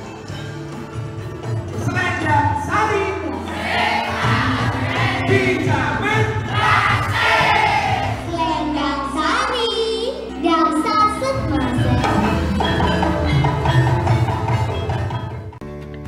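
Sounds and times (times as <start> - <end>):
instrumental accompaniment: 0.0 - 16.0
voices singing together: 3.4 - 8.3.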